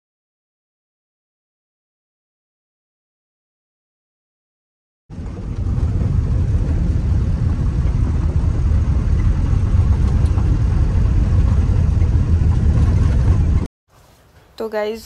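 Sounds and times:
car engine rumble: 5.1s - 13.7s
road noise inside car: 5.1s - 13.7s.

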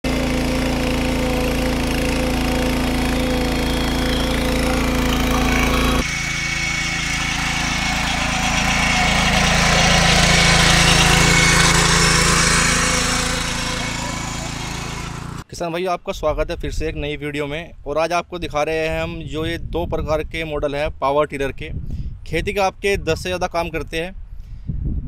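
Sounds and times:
tiller petrol engine running: 0.0s - 15.5s.

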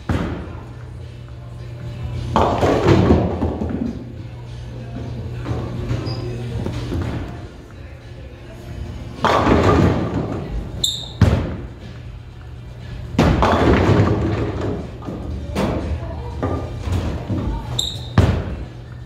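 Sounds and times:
background music: 0.0s - 19.0s
bowling ball hitting pins: 2.3s - 4.1s, 9.2s - 10.5s, 13.1s - 15.9s.

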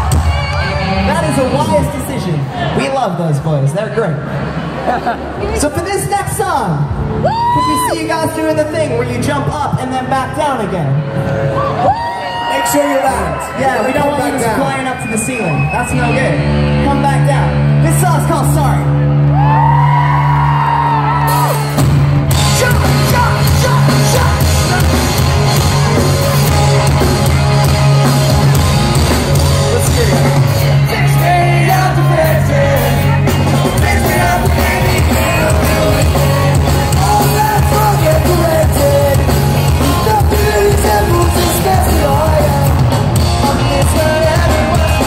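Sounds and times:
pop-punk band playing live: 0.0s - 2.0s, 19.2s - 45.0s
person singing: 29.8s - 45.0s.

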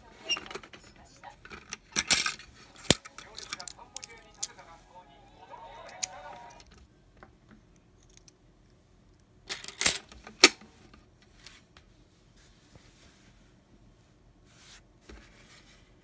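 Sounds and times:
coins clattering into plastic bank: 1.6s - 4.5s, 9.5s - 10.1s.

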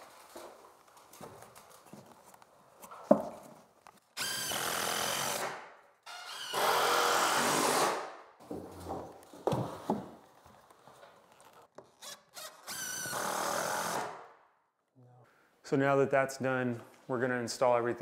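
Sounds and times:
power drill whining: 4.2s - 5.5s, 6.1s - 8.0s, 12.0s - 14.1s.

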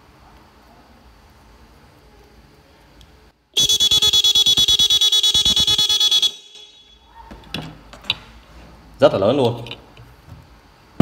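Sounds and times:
horn honking in rapid pulses: 3.6s - 7.1s.

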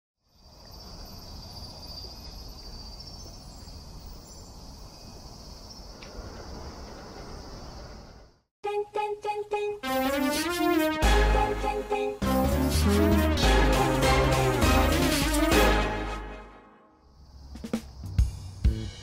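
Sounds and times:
insects chirring: 0.3s - 8.4s, 17.0s - 18.2s.

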